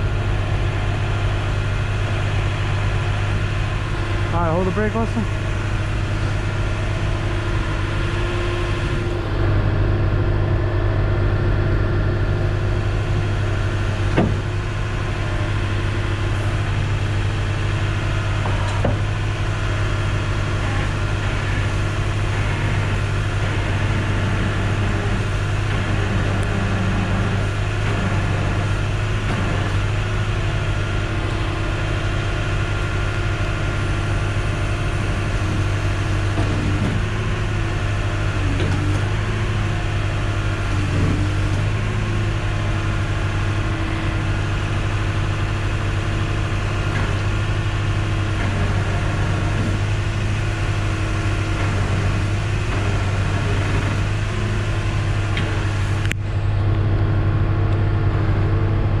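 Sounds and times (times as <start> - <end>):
truck engine humming: 0.0 - 59.0.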